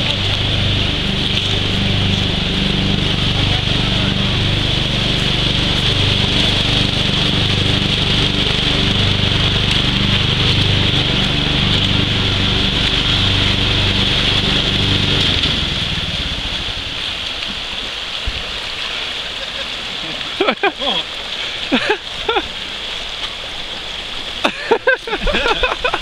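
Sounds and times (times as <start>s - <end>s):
low hum: 0.0s - 18.1s
river water rushing over rapids: 0.0s - 26.0s.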